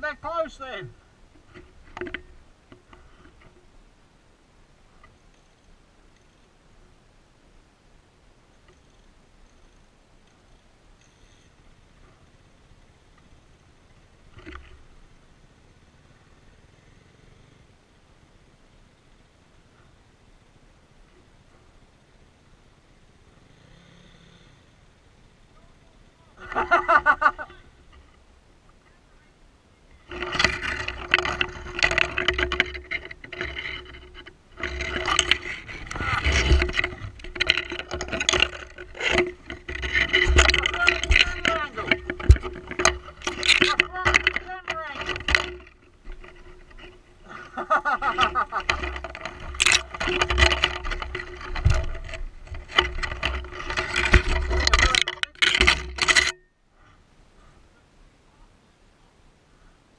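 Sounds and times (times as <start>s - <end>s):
rustling and scraping in scrub: 0.0s - 3.8s, 30.0s - 56.4s
motorcycle knocks and clatter: 30.1s - 47.0s.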